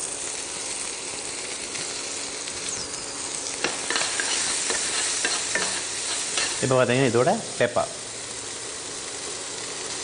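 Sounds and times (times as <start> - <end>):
leaves sizzling in hot oil: 0.0 - 10.0
spatula scraping pan: 3.6 - 6.6.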